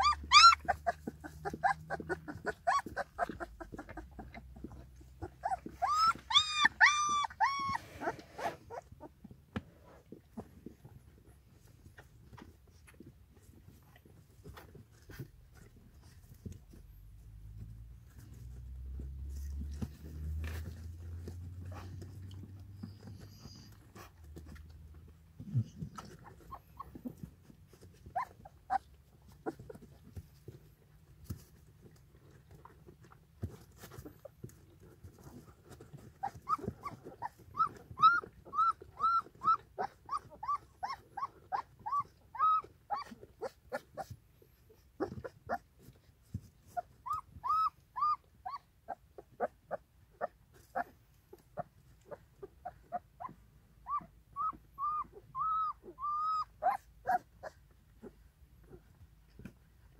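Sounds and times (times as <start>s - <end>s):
puppies squeaking and whimpering: 0.0s - 9.2s, 19.3s - 24.6s, 25.4s - 30.1s, 35.1s - 58.9s.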